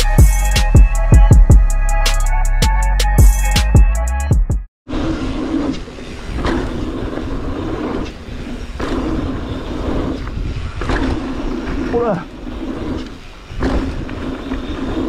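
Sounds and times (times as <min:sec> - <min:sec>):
music: 0:00.0 - 0:04.7
bike tyres rumbling on trail: 0:04.9 - 0:15.0.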